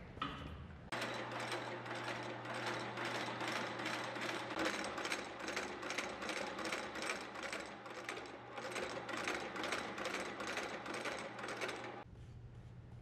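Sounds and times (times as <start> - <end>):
low workshop hum: 0.0 - 13.0
stitching machine running: 0.9 - 12.0.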